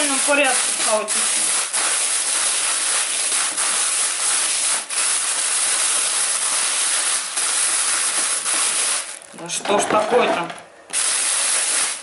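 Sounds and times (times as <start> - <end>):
plastic bag crinkling: 0.0 - 9.6.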